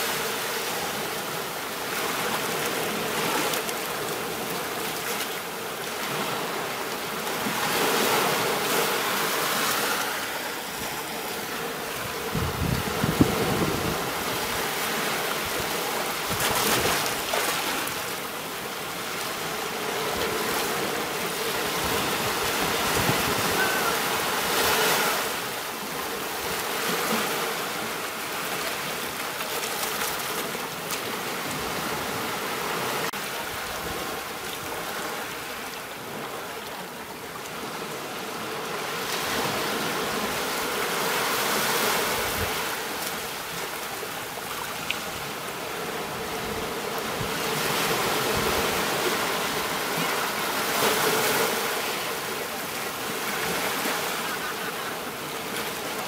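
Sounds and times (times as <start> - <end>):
ocean waves breaking: 0.0 - 56.0.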